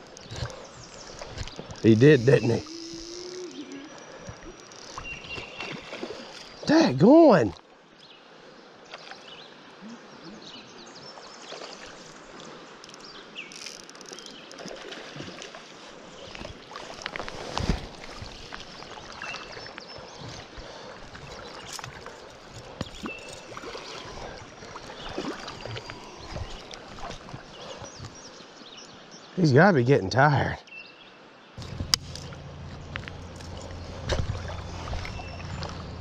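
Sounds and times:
river water running: 0:00.0 - 0:36.0
short splashes and knocks: 0:05.0 - 0:06.6, 0:14.5 - 0:15.7, 0:16.3 - 0:19.6, 0:31.6 - 0:36.0.

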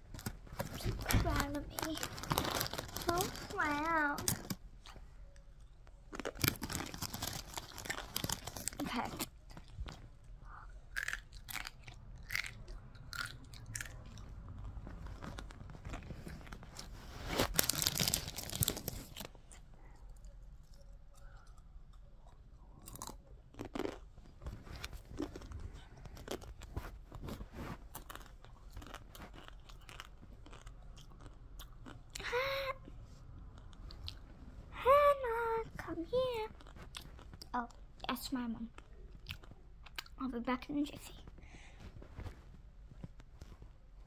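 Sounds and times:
person chewing crunchy food: 0:06.1 - 0:32.2, 0:36.5 - 0:38.0, 0:38.7 - 0:40.2.

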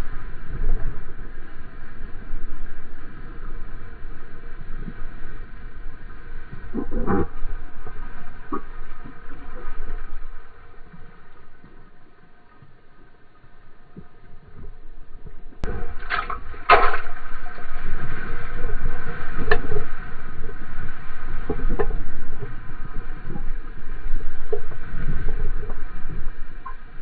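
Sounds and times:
water rushing under board: 0:00.0 - 0:27.0
water lapping against surfboard: 0:01.7 - 0:13.1, 0:13.9 - 0:27.0
loud splash: 0:15.7 - 0:17.6.

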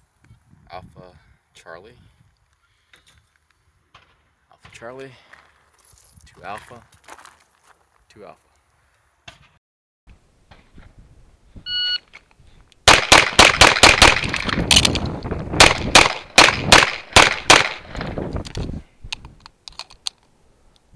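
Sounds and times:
shot timer beep: 0:11.7 - 0:12.0
pistol firing shots: 0:12.8 - 0:14.6, 0:15.6 - 0:18.0.

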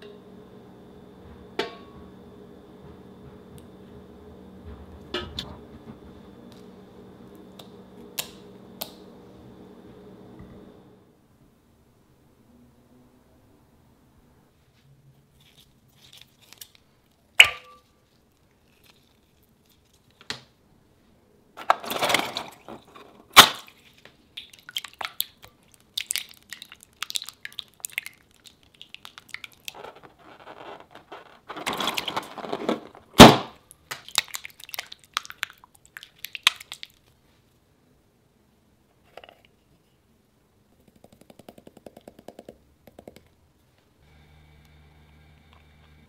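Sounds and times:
slime squelching: 0:23.6 - 0:29.8, 0:33.9 - 0:37.2.

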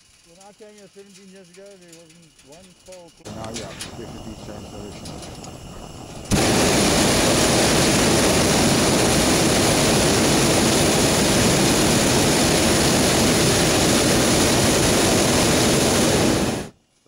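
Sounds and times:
propane burner blast: 0:03.2 - 0:16.8.

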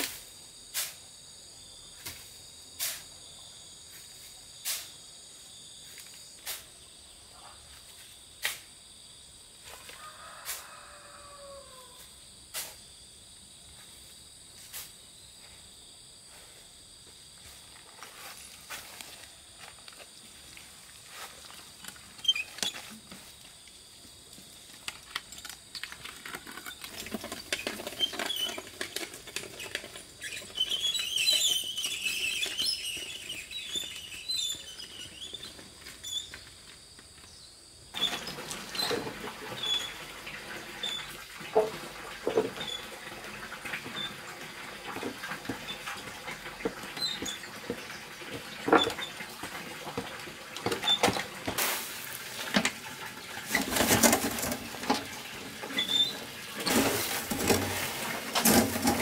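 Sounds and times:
rustling undergrowth: 0:17.4 - 0:37.3, 0:51.5 - 0:54.9, 0:56.0 - 0:59.0
soil pouring out: 0:24.7 - 0:35.6, 0:37.9 - 0:59.0
wheelbarrow rattling: 0:24.8 - 0:36.4, 0:38.0 - 0:59.0.

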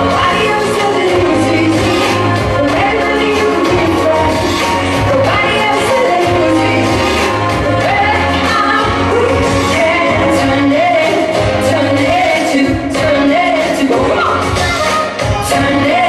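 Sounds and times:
instrumental accompaniment with bass: 0:00.0 - 0:16.0
woman singing into microphone: 0:00.0 - 0:16.0.

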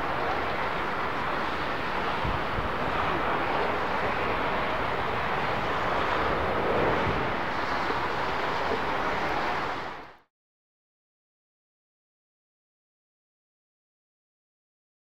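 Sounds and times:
jet engines rushing: 0:00.0 - 0:10.2.

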